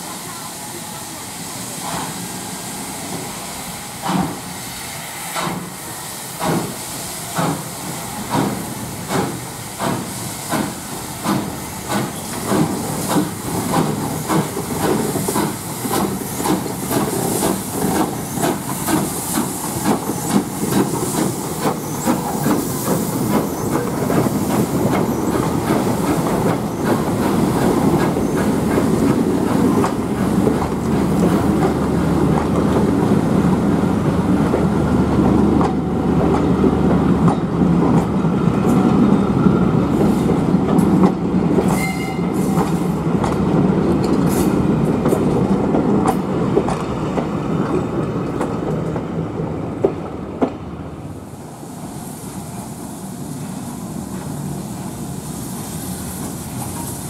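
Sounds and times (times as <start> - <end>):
steam hissing: 0.0 - 36.2, 51.0 - 57.0
steam locomotive chuffing: 0.0 - 46.8
coaches rumbling and wheel clicks: 8.3 - 33.5, 34.2 - 39.4, 42.4 - 50.6.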